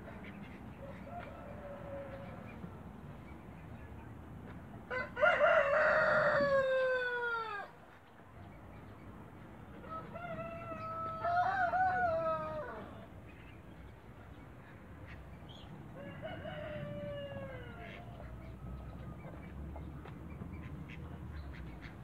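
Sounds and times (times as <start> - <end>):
rooster crowing: 4.9 - 7.7, 9.8 - 12.9, 16.0 - 18.1.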